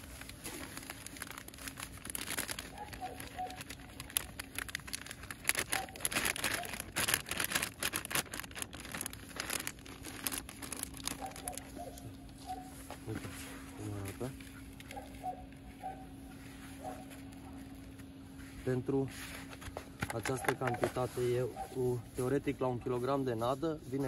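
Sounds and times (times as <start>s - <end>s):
plastic bag crinkling: 0.0s - 12.8s.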